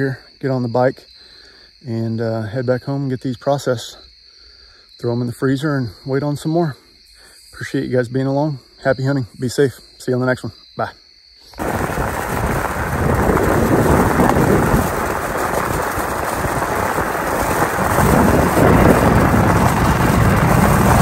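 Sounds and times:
tyres rumbling on unpaved road: 11.6 - 21.0
wind rushing over microphone: 11.6 - 21.0.

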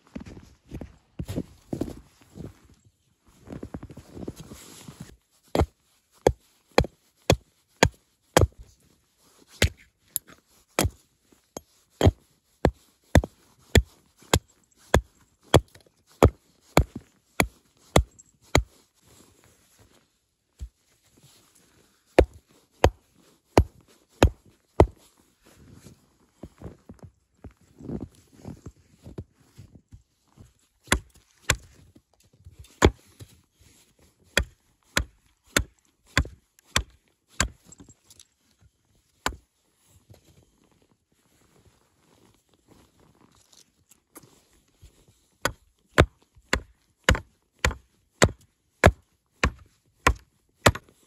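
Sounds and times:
wood being chopped: 30.8 - 31.7, 34.4 - 37.6, 45.4 - 50.9.

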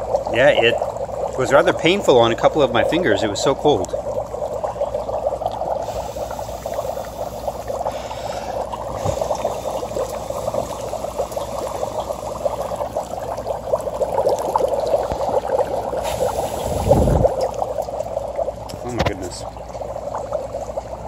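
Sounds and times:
dry ice bubbling in water: 0.0 - 21.0.

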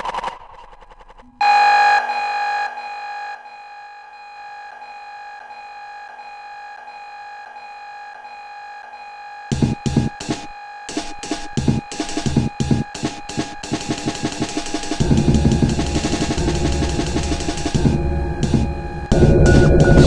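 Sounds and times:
electronic drone tone: 13.9 - 20.0.

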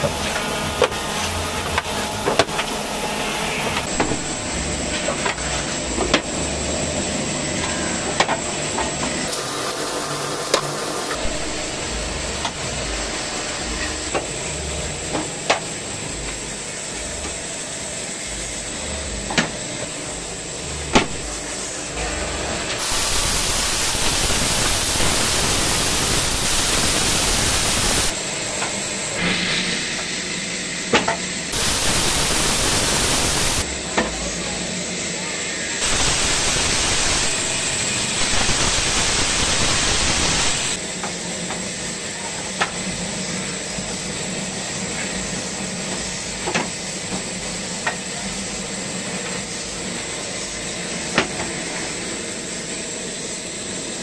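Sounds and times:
woodworking machine running: 0.0 - 40.8.

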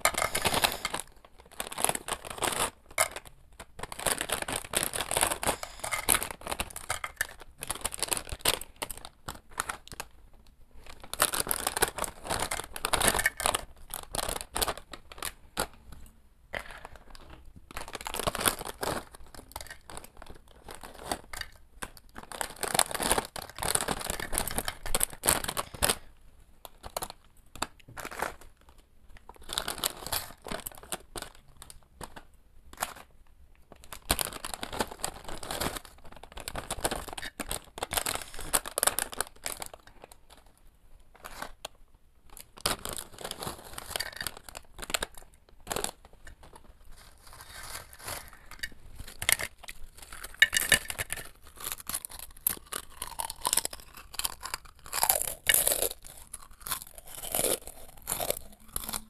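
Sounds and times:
foil packets crinkling: 0.0 - 10.2, 10.8 - 15.8, 16.6 - 33.1, 33.7 - 59.0
chips pouring onto a plate: 51.9 - 59.0.

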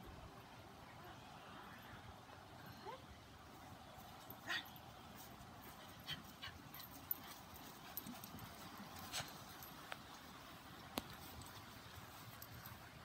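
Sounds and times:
faint footsteps on grass: 3.5 - 13.0.

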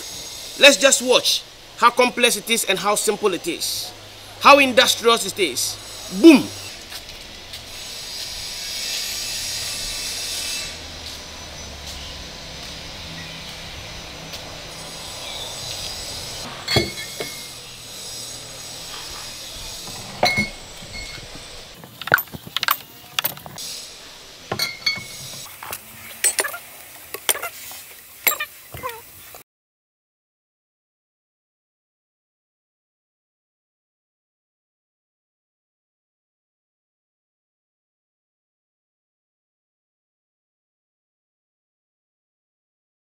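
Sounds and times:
glass bottles clinking: 16.6 - 17.6, 19.9 - 23.6, 24.5 - 25.4.

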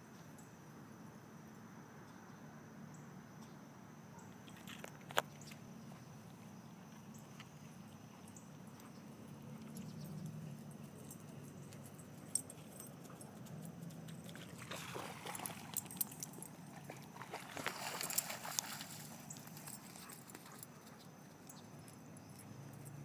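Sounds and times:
dog splashing through water: 14.0 - 20.6.

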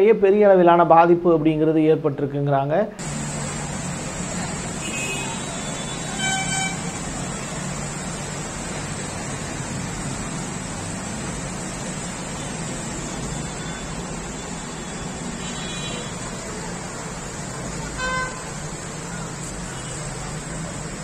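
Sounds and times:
heavy rain hissing: 3.0 - 21.0
brief tone: 13.2 - 16.0.

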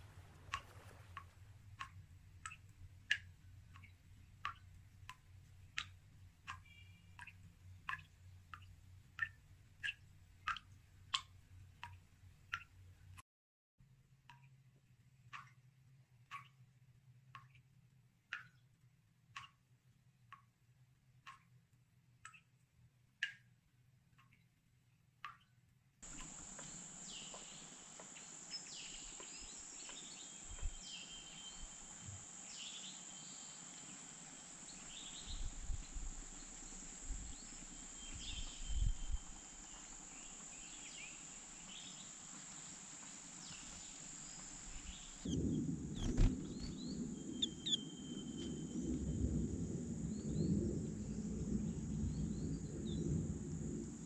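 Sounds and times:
soft ticks: 0.5 - 13.2, 14.3 - 14.6, 15.2 - 15.7, 16.3 - 16.6, 17.3 - 17.7, 18.3 - 18.6, 19.3 - 19.7, 21.2 - 22.6, 24.1 - 24.5, 26.1 - 30.9
steady high hiss: 26.0 - 52.0
bird chirps: 26.1 - 49.2
low rumble: 45.0 - 54.0.

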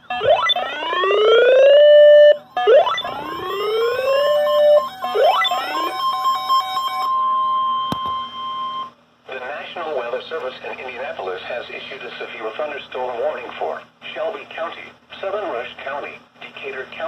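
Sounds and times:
sweeping siren-like alarm: 0.0 - 8.9
steady warning tone: 0.0 - 9.0.

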